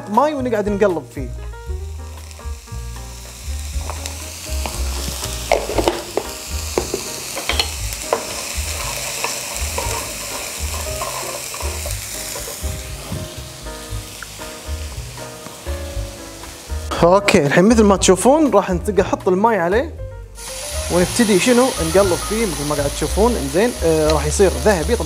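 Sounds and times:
onion sizzling in a pan: 1.0 - 18.5, 20.3 - 25.0
wooden spatula scraping a pan: 8.0 - 13.3.

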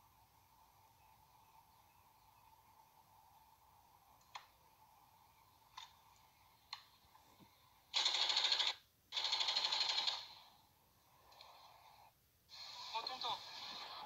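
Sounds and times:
faint clicks: 4.1 - 4.6, 5.6 - 7.6
automatic rifle bursts: 8.0 - 10.4.

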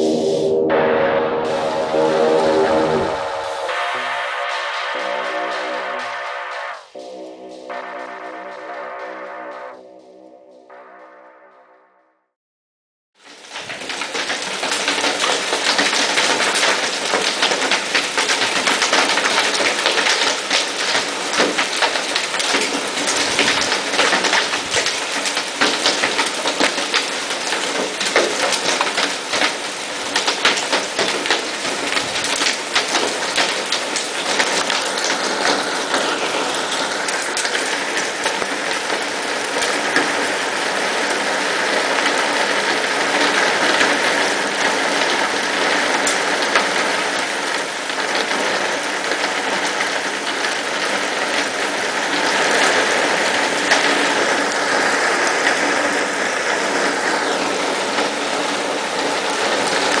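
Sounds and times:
hail and rain falling hard: 13.3 - 60.0.

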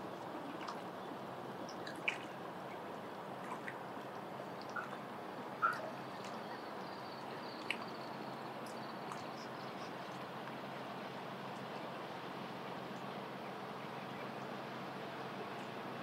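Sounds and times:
lake water lapping: 0.0 - 15.9.

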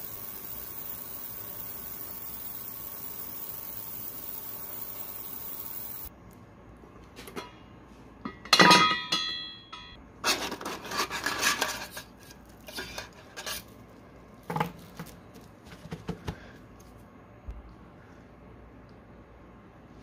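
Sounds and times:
metal clang: 8.2 - 10.0.

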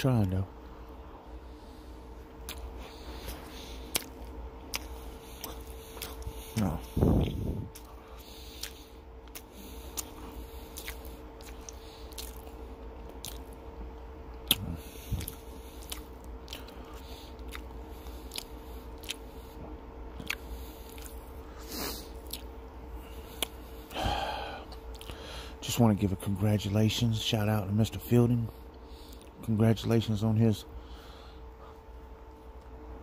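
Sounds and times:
faint steady hum: 0.0 - 33.0
person chewing: 1.5 - 13.7, 14.3 - 25.3.

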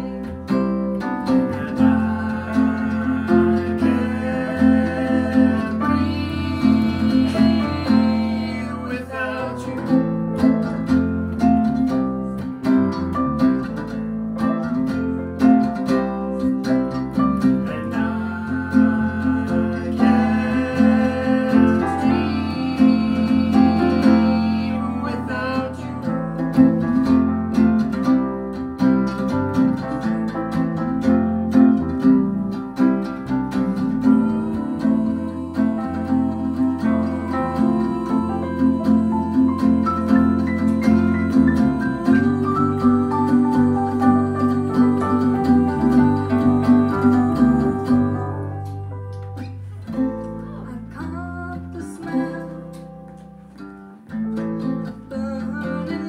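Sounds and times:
woman singing lead: 0.0 - 12.4, 15.7 - 27.4, 32.9 - 53.3, 54.6 - 56.0
electric bass: 0.0 - 56.0
strummed acoustic guitar: 0.0 - 56.0
man singing along: 1.4 - 10.1, 17.6 - 26.6.

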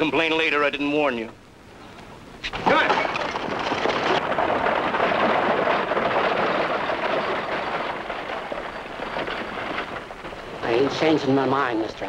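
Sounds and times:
buggy wheels rolling: 2.0 - 12.0
horses' hooves on dirt: 2.5 - 12.0.

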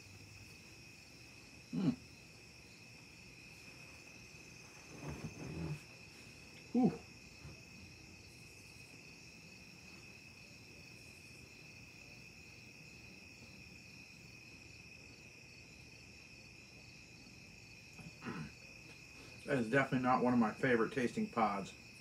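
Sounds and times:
man's throat sound: 1.7 - 2.0, 18.1 - 18.5
mouth noise: 1.7 - 2.0, 6.7 - 7.1.

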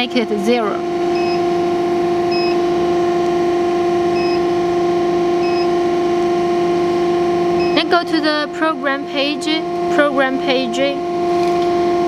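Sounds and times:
hydraulic machine hum: 0.0 - 12.0
short high beeps: 4.2 - 4.4.

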